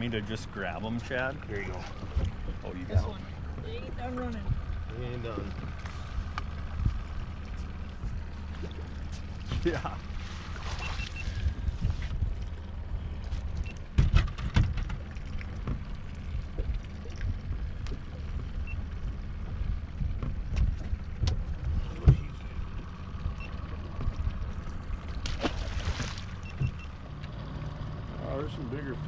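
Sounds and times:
steady low rumble: 0.0s - 29.0s
knocks and thumps in boat: 1.2s - 27.3s
fish splashing at surface: 25.2s - 26.6s.

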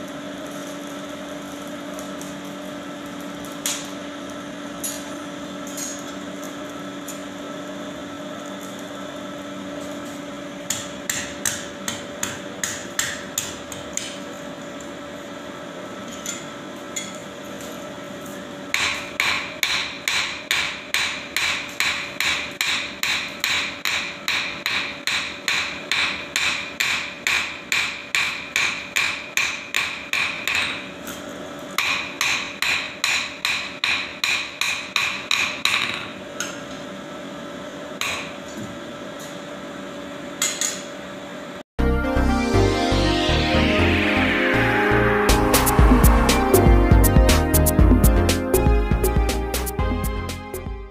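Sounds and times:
hammer striking metal on anvil: 10.7s - 14.2s, 18.7s - 30.9s, 31.8s - 36.0s
steady low hum: 41.9s - 50.9s.

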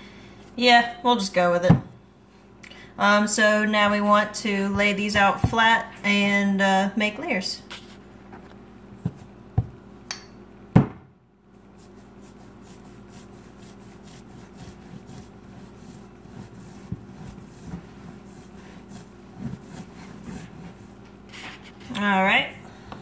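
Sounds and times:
steady low hum: 0.0s - 23.0s
dough rolling with soft rubbing: 0.3s - 6.0s, 7.8s - 9.9s, 11.5s - 22.3s
dull thuds: 1.6s - 2.0s, 9.0s - 9.8s, 16.7s - 18.3s.

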